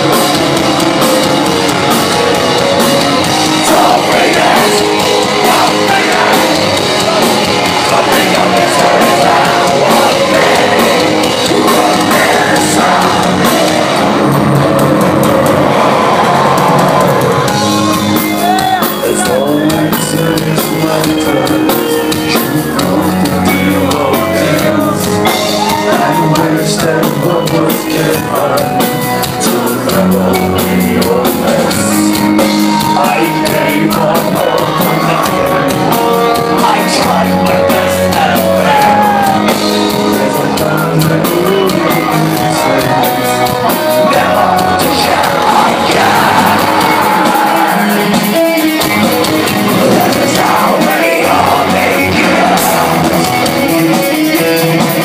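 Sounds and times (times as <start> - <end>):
distorted electric guitars: 0.0 - 55.0
drums: 0.0 - 55.0.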